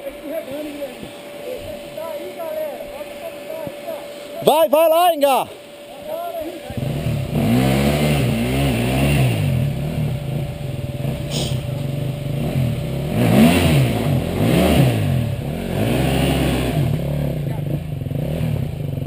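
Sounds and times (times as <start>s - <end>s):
dirt bike engine revving: 6.6s - 19.0s.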